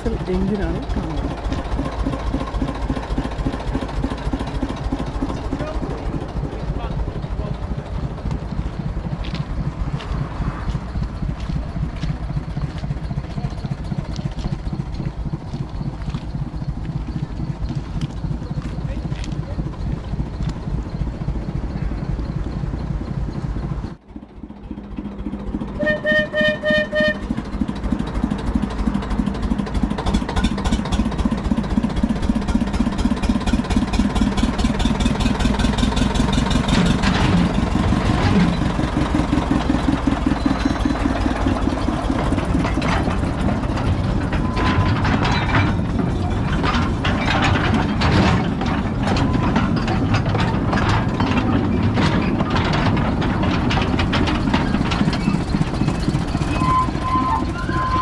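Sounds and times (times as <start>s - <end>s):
diesel engine running: 0.0s - 58.0s
knocks and clanks: 24.8s - 58.0s.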